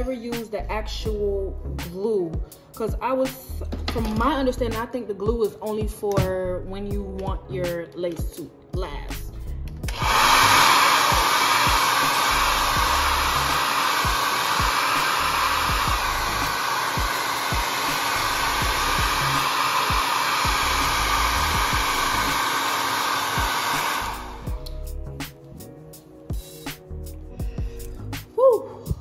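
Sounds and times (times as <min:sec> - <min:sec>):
hair dryer blowing: 0:09.8 - 0:24.8.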